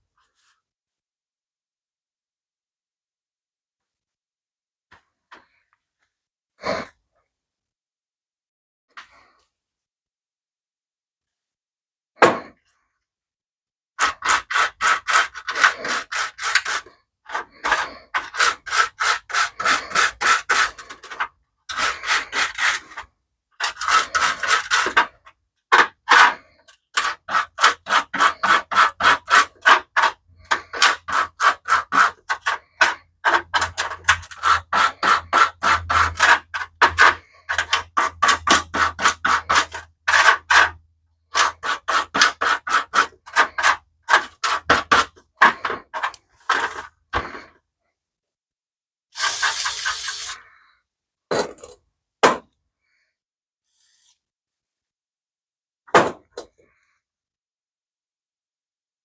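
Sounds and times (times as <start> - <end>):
wire brush scrubbing metal: 49.2 - 50.4.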